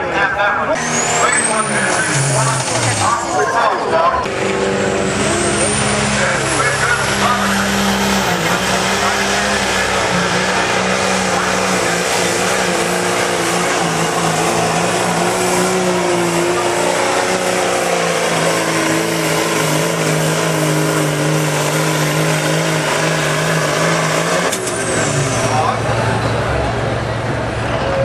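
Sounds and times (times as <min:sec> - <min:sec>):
diesel engine droning under load: 0:00.0 - 0:28.0.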